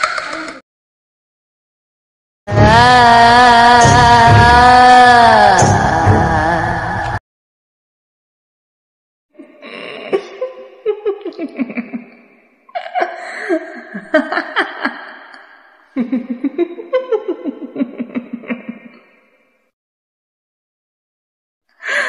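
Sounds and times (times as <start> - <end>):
sinister horror laughter: 12.8 - 19.0.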